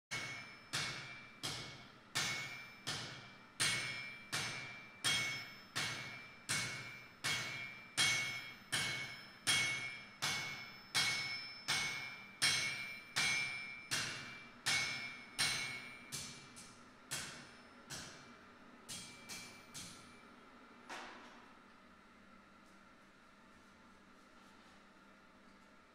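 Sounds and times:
hammer ringing on anvil: 0:00.1 - 0:20.3.

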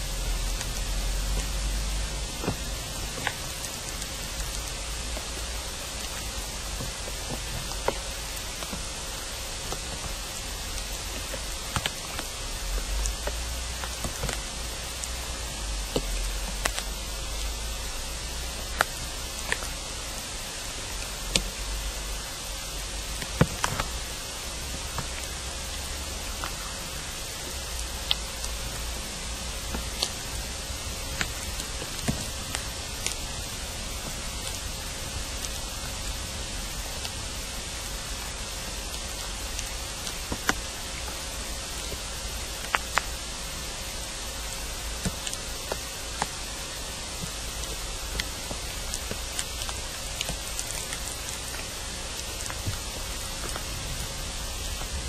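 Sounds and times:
faint hum: 0:00.0 - 0:55.0
steady hiss: 0:00.0 - 0:55.0
low rumble: 0:53.0 - 0:55.0.

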